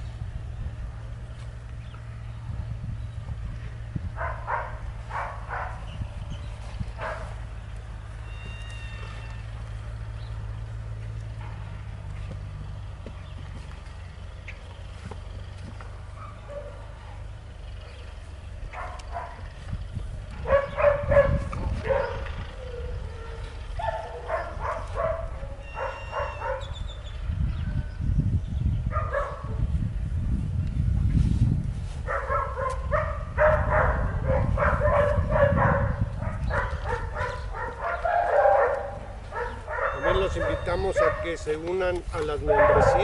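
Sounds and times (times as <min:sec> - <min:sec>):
dog yipping and barking: 0:04.2 - 0:06.1, 0:07.0 - 0:07.4, 0:18.7 - 0:19.5, 0:20.4 - 0:26.9, 0:28.9 - 0:29.6, 0:32.1 - 0:41.3, 0:42.5 - 0:43.0.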